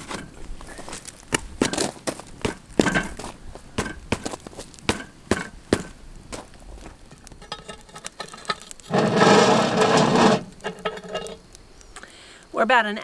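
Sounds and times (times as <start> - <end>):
wood fire crackling and popping: 0.0 - 12.6
metal scraping on metal: 7.1 - 11.4.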